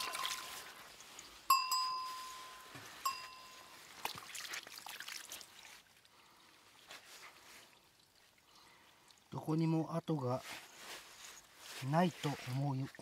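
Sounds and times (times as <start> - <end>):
creek water trickling: 0.0 - 13.0
bell-like metallic rings: 1.5 - 3.8.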